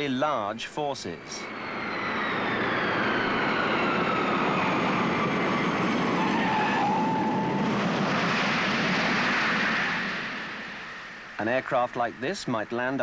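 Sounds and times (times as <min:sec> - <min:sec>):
jet engine whine: 0:00.0 - 0:13.0
rush of air: 0:01.5 - 0:12.4.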